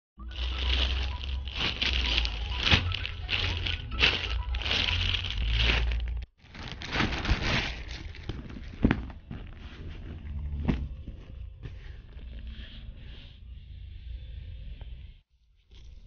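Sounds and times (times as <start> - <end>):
plastic bag crinkling: 0.2 - 10.4.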